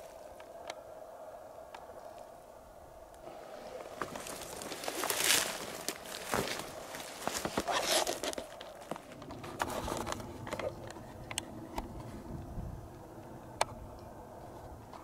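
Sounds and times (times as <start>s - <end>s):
footsteps crunching dry undergrowth: 3.2s - 11.0s.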